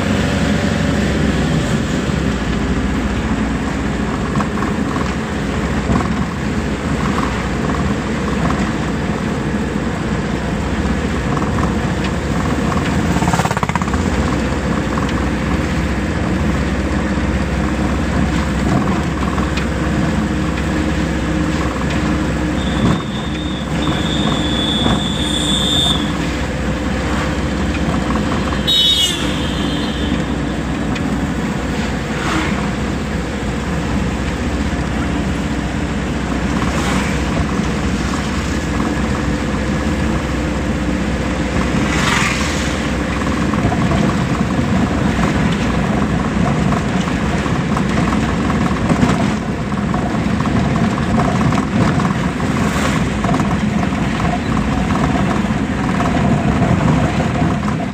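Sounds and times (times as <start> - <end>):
vehicle engine and road noise: 0.0 - 57.9.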